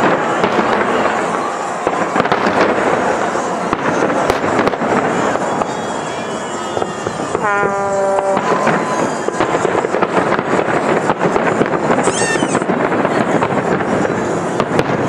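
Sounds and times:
firework shells exploding: 0.0 - 15.0.

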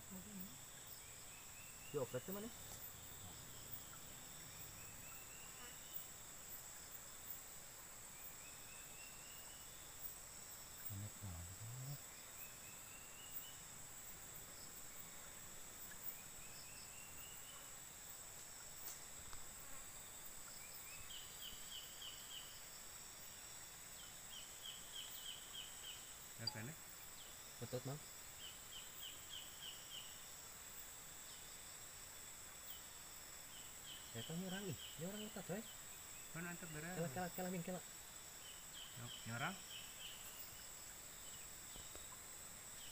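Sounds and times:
high-pitched insect drone: 8.2 - 15.1, 19.6 - 30.4.

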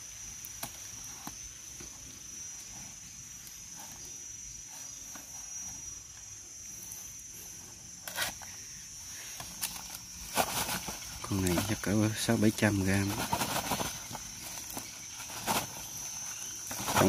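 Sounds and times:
high-pitched insect trilling: 0.0 - 17.0
short rustle: 9.3 - 17.0
handling noise: 9.4 - 17.0.

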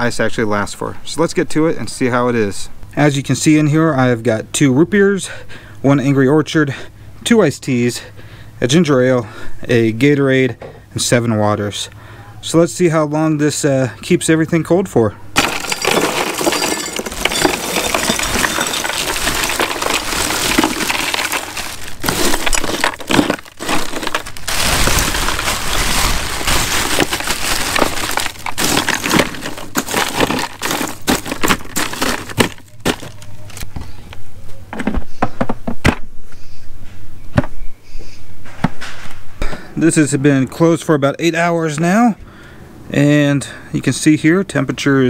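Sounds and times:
ice cubes clattering onto bottles: 15.4 - 33.6.

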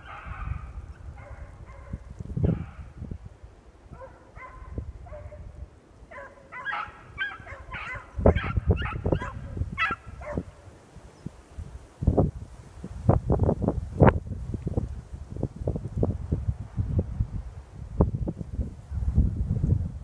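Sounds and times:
beagles baying and yipping: 0.0 - 2.9, 3.9 - 5.5, 6.1 - 10.8
wind buffeting microphone: 0.0 - 20.0.

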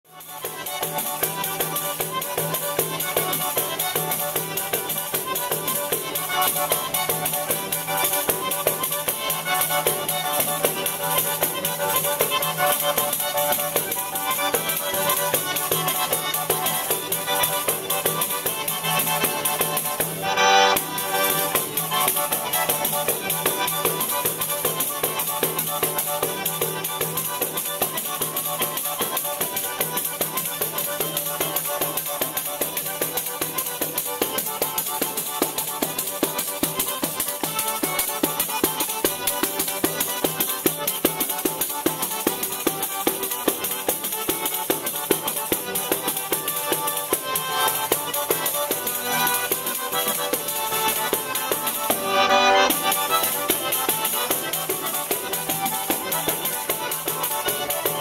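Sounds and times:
button accordion playing: 0.1 - 58.0
frame drum with jingles: 52.6 - 58.0.

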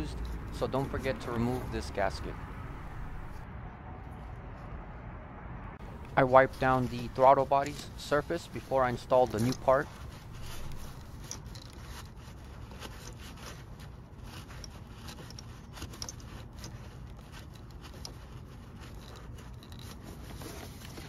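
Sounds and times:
low background rumble: 0.0 - 11.8.

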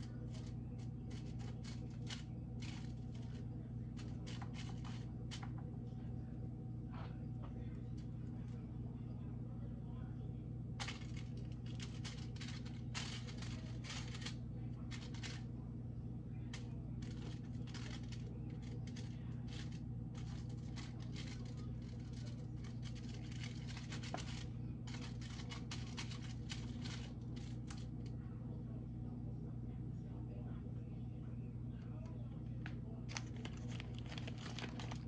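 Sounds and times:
packaging crinkling: 0.0 - 3.4, 4.0 - 5.5, 10.8 - 15.4, 16.5 - 27.8, 33.1 - 35.0
low hum: 0.0 - 35.0.

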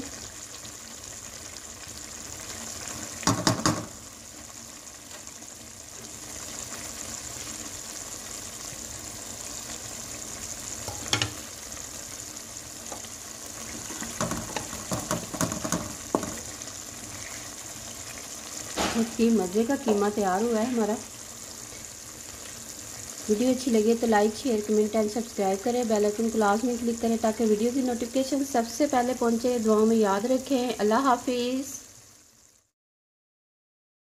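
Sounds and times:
meat sizzling in oil: 0.0 - 32.7
utensils knocking against pan: 3.2 - 4.0, 10.9 - 11.4, 13.8 - 16.4.

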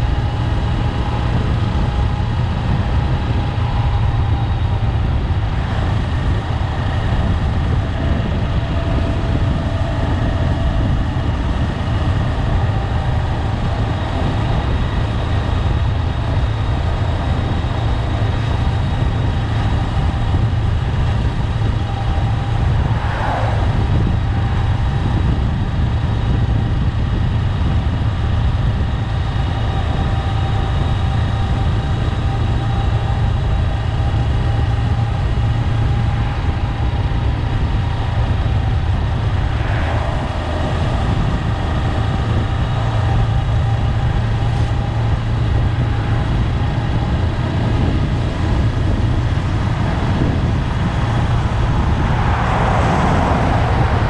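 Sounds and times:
motorcycle engine rumbling: 0.0 - 54.0.

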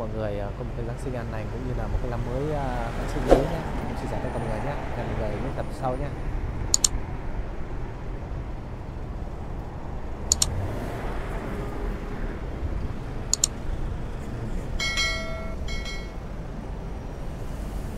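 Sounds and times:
street traffic rumble: 0.0 - 17.9
sharp double click: 6.7 - 7.0, 10.3 - 10.5, 13.3 - 13.6.

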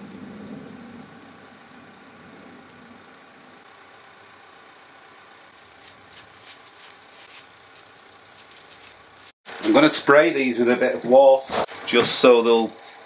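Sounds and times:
faint hum: 0.0 - 11.2
paper towel swishing on wood: 5.6 - 9.4.

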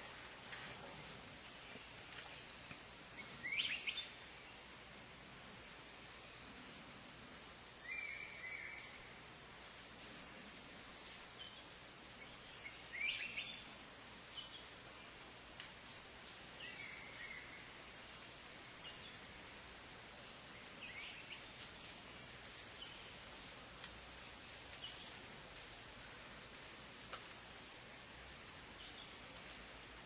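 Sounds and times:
high insect drone: 0.0 - 30.0
bird calls: 3.2 - 4.2.

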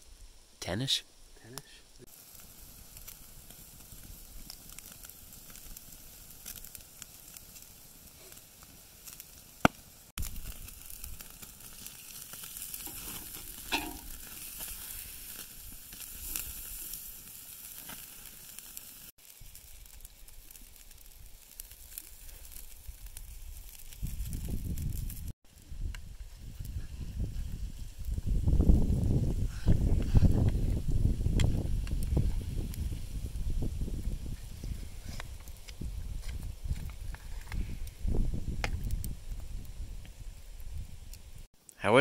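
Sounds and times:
fire crackling: 0.0 - 42.0
steaks sizzling: 2.0 - 25.4
tongs knocking metal: 13.7 - 14.2.

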